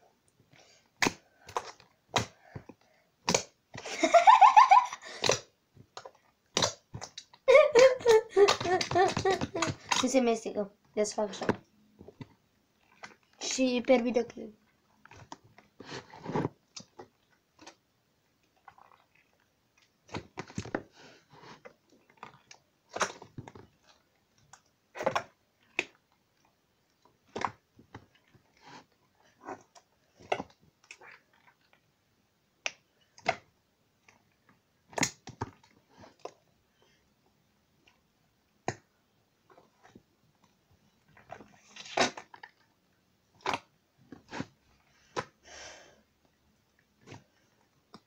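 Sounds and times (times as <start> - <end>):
slime squelching and popping: 0.6 - 3.9, 5.1 - 10.4, 11.2 - 13.4, 15.0 - 20.9, 21.6 - 31.9, 32.6 - 36.4, 39.5 - 42.6, 43.3 - 45.4.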